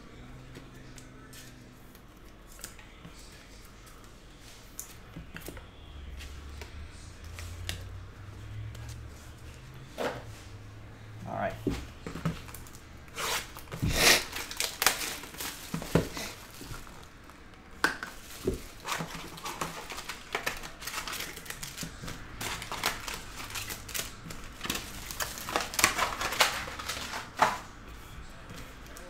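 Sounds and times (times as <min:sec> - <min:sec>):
foil packs crinkling: 0:12.4 - 0:17.5, 0:18.1 - 0:27.7
cardboard box tearing: 0:13.1 - 0:16.8.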